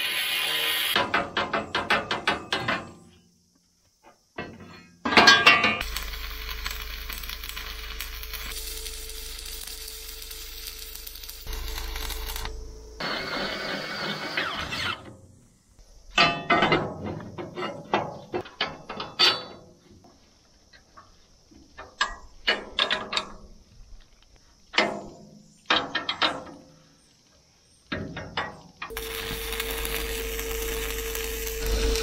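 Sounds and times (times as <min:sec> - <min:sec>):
electric drill boring through steel: 0:05.8 - 0:15.1, 0:28.9 - 0:32.0.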